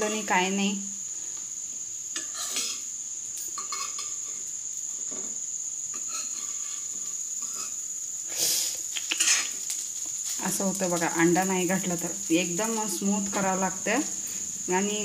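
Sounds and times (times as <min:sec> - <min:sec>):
cutlets frying in oil: 0:01.0 - 0:15.0
metal spoon scraping a pan: 0:06.0 - 0:07.8.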